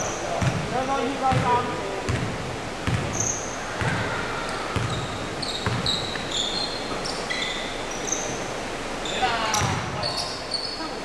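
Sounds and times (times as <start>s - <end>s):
basketball dribbling on hardwood: 1.3s - 3.2s, 5.6s - 6.0s
sneakers squeaking on court: 1.3s - 4.1s, 4.7s - 8.4s, 9.0s - 10.9s.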